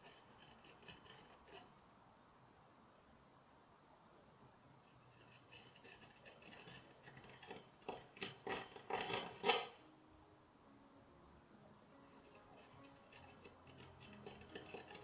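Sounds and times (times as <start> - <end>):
carving gouge cutting wood: 0.0 - 1.7, 5.2 - 9.8, 12.2 - 15.0.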